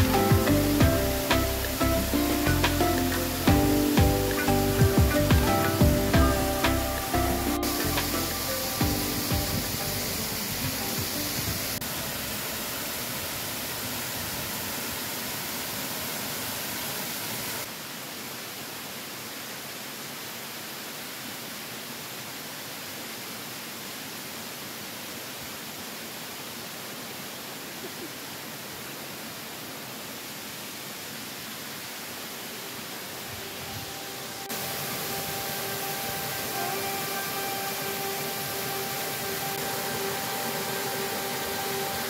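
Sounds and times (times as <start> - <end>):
waterfall pouring onto rock: 0.0 - 16.3.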